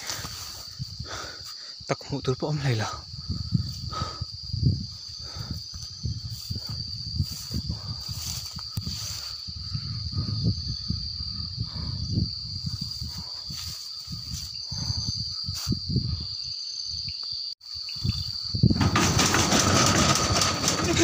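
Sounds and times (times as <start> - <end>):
night insects trilling: 0.0 - 21.0
low rumbling on microphone: 3.0 - 8.4.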